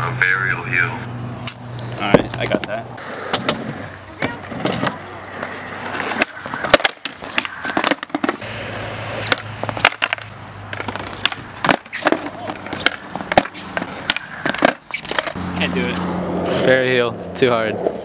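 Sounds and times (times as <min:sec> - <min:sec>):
skateboard wheels rolling on concrete: 0:00.7 - 0:18.0
skateboard deck clacking: 0:02.2 - 0:15.4.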